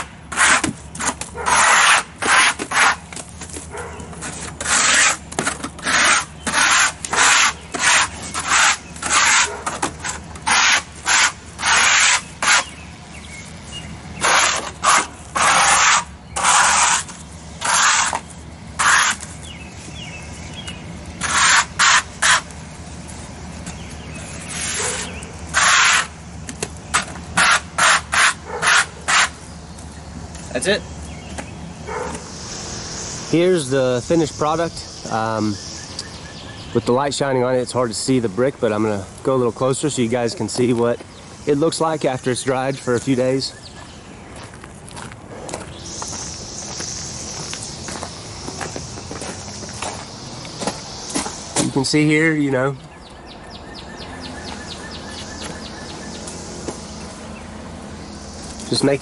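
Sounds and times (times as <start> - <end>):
scraper rasping on brick: 0.0 - 3.1, 4.2 - 12.7, 14.2 - 19.3, 21.2 - 22.5, 24.5 - 26.1, 27.4 - 29.4.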